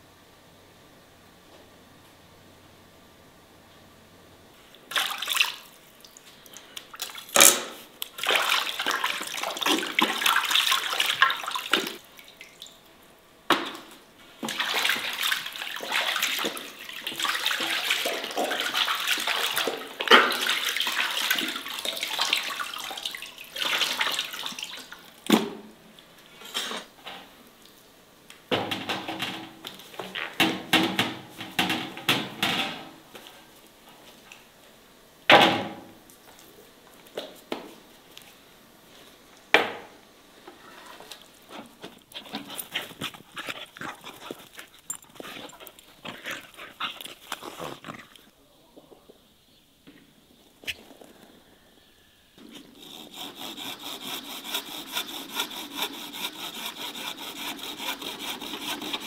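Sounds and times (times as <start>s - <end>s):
water sloshing in metal basin: 8.2s - 12.8s, 14.4s - 25.6s.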